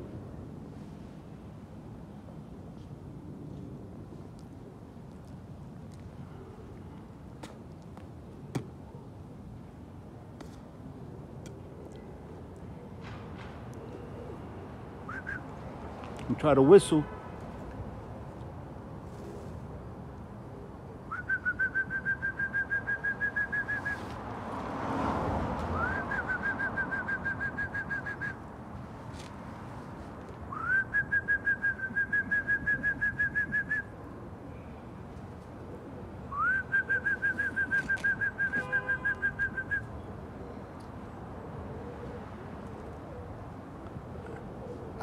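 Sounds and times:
man whistling: 15.1 - 15.4, 21.1 - 24.0, 25.8 - 28.4, 30.5 - 33.9, 36.3 - 39.9.

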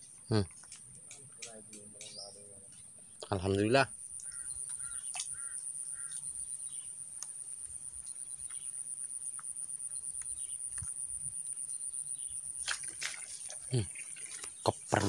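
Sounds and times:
insects trilling: 0.0 - 15.0
faint ticks: 0.5 - 2.2, 4.2 - 11.2.

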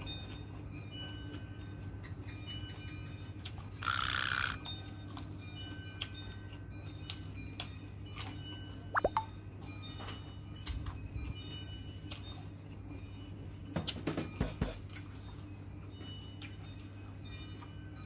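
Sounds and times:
chewing and smacking: 0.1 - 5.4, 14.9 - 16.9.

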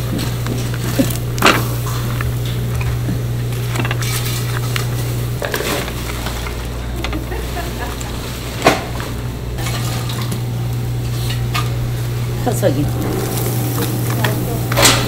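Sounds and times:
steady low hum: 0.0 - 15.0
fish sizzling on grill: 9.4 - 15.0.

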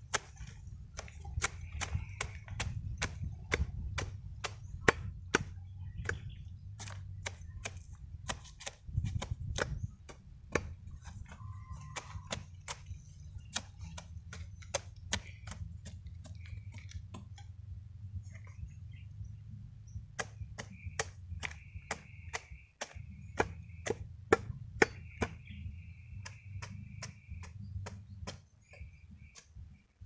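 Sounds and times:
machete chopping: 0.0 - 17.4, 20.2 - 25.5.

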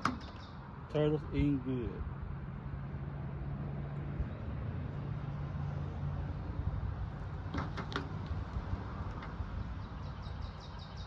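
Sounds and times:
faint outdoor background noise: 0.0 - 11.0.

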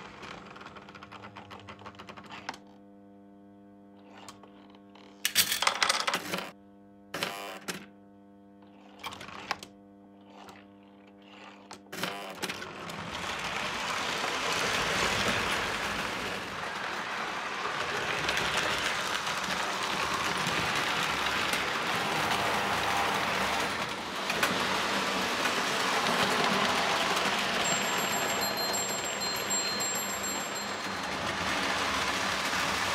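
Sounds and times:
low electrical hum: 0.0 - 30.1
model train running on track: 12.8 - 32.9.

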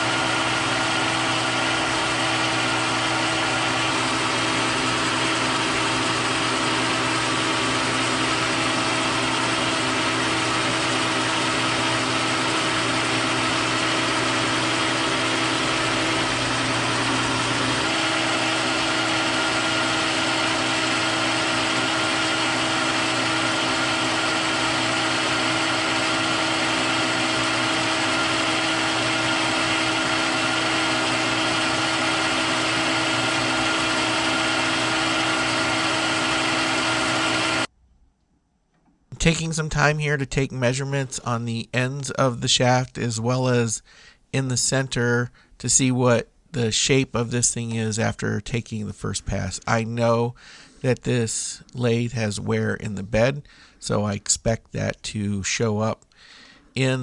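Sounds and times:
held machine whining tones: 0.0 - 37.7
metal lathe running: 0.0 - 37.7.

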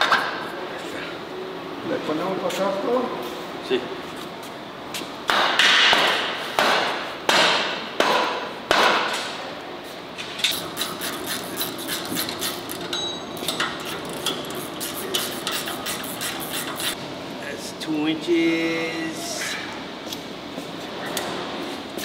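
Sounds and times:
hammer striking steel: 5.3 - 9.3.

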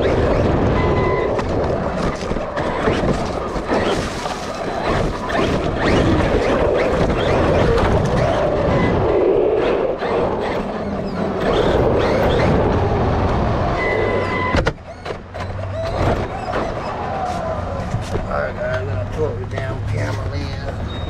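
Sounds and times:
wind noise: 0.0 - 14.9
toy truck tyres rumbling: 0.0 - 21.0.

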